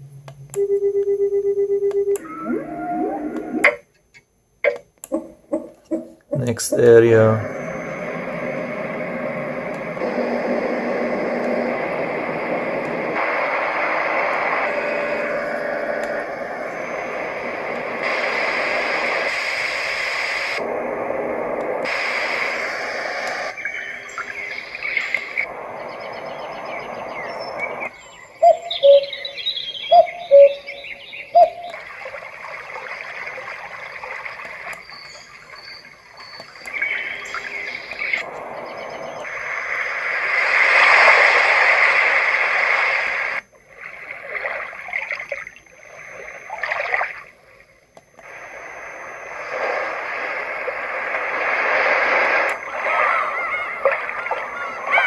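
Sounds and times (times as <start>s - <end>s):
bird chirps from small speaker: 26.0s - 31.9s.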